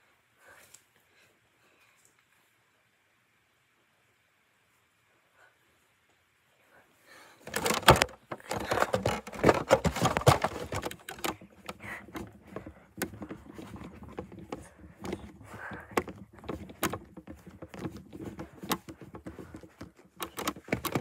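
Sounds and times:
phone handling rubbing and knocks: 0:07.4 - 0:21.0.

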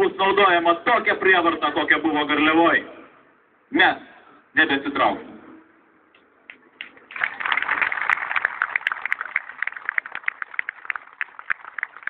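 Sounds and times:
crowd applauding: 0:06.8 - 0:12.0.

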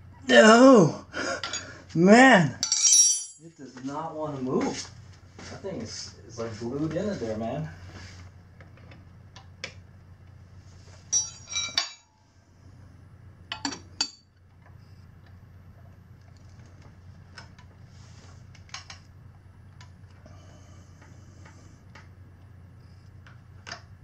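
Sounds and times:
metal tools clinking and clanking: 0:02.6 - 0:03.5, 0:11.1 - 0:12.1.

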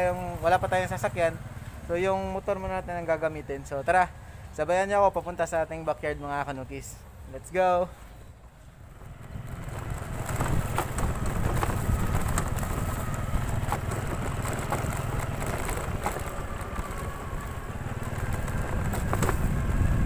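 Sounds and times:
motorcycle engine running: 0:00.0 - 0:03.0, 0:08.8 - 0:20.0.

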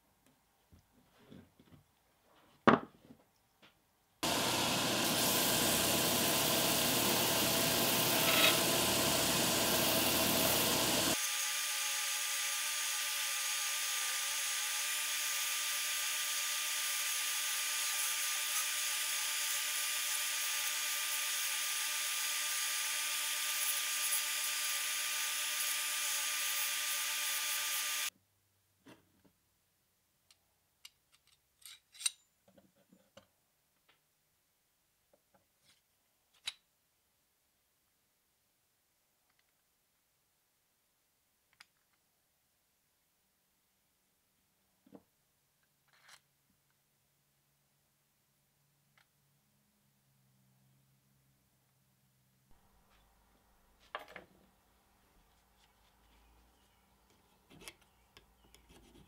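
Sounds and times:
belt grinder grinding metal: 0:04.2 - 0:28.1.

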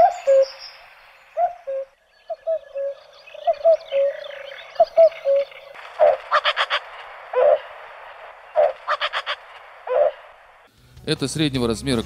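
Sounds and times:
cuckoo calling: 0:00.0 - 0:10.3
quick harsh bird notes: 0:05.1 - 0:10.4.

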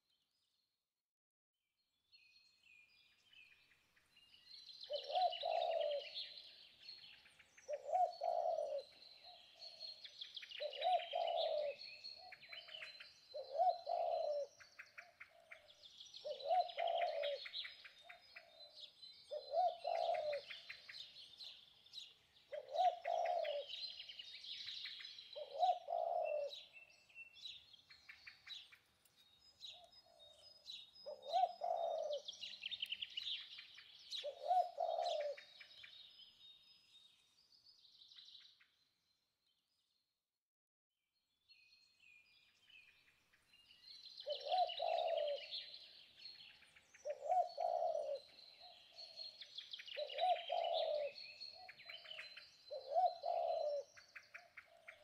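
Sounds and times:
small birds chirping and trilling: 0:01.9 - 0:40.1, 0:41.2 - 0:55.0
bird low call: 0:04.8 - 0:28.8, 0:29.6 - 0:36.1, 0:44.0 - 0:55.0.

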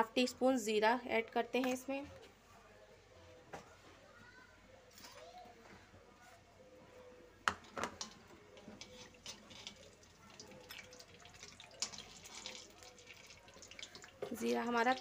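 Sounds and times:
metal spoon stirring in pan: 0:07.6 - 0:15.0
seeds sizzling in hot oil: 0:07.8 - 0:15.0.

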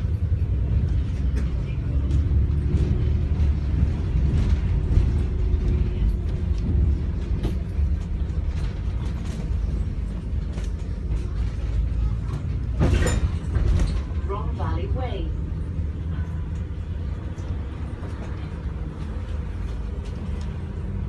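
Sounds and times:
bodywork rattles and creaks: 0:00.0 - 0:21.0
bus engine and road rumble: 0:00.0 - 0:21.0.

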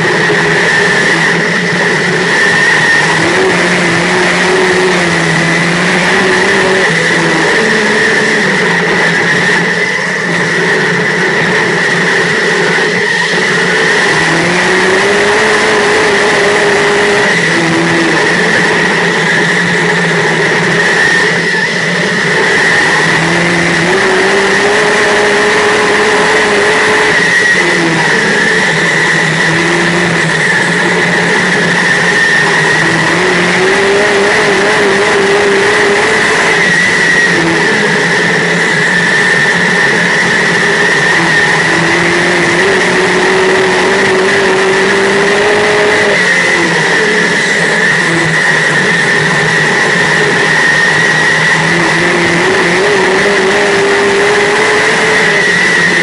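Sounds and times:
high whine: 0:00.0 - 0:56.0
race car engine revving: 0:00.0 - 0:56.0.

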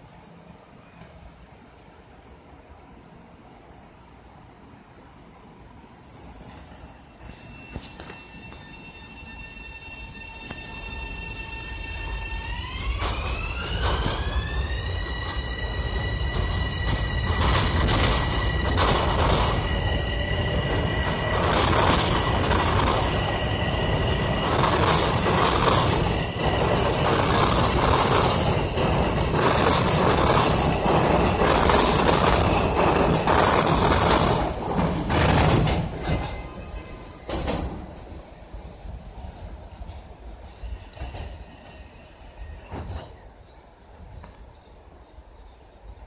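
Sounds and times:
train wheels clattering over rails: 0:12.4 - 0:43.1.

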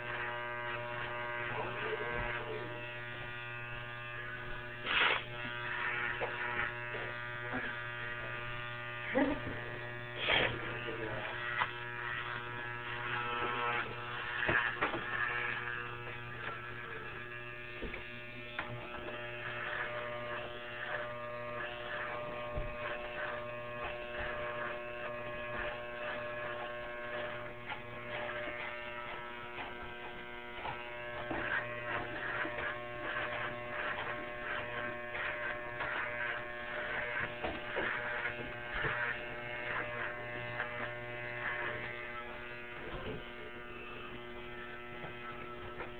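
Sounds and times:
electric shaver buzzing: 0:00.0 - 0:45.9
shaving rasp: 0:00.0 - 0:45.9.

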